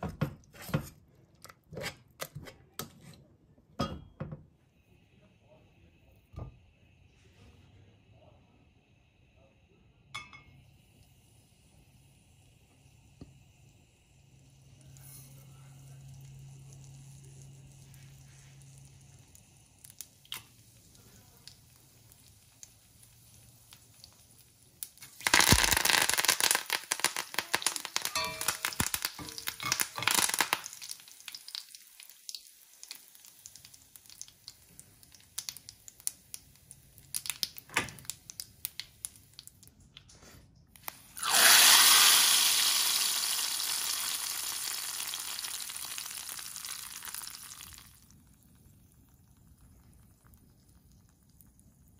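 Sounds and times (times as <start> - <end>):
loud sizzle and crackle of oil: 10.3 - 39.7, 40.8 - 51.9
mustard seeds popping in oil: 18.6 - 40.1, 40.8 - 51.9.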